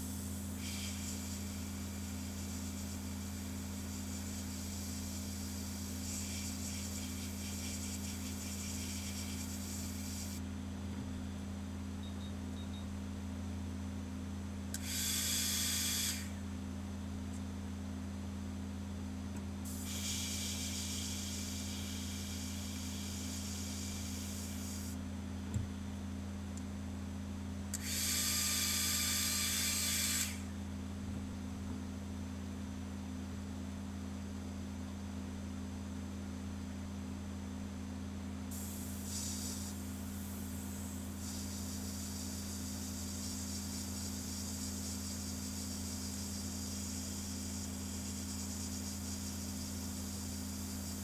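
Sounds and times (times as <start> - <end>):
airbrush spraying hiss: 0.0 - 10.4, 14.8 - 16.3, 19.7 - 25.0, 38.5 - 51.0
steady low hum: 0.0 - 51.0.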